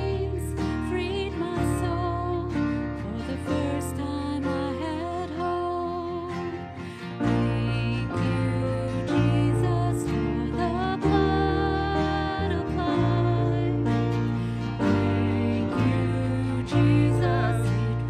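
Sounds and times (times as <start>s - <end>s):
held bass notes: 0.0s - 6.3s, 7.2s - 18.0s
guitar: 0.0s - 18.0s
worship band playing: 8.2s - 18.0s.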